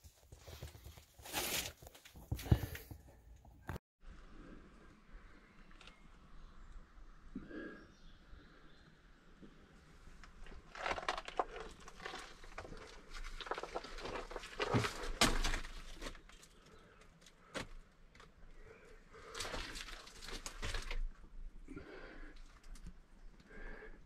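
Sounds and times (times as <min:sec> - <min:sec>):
footsteps crunching on loose stones: 0:10.7 - 0:16.2.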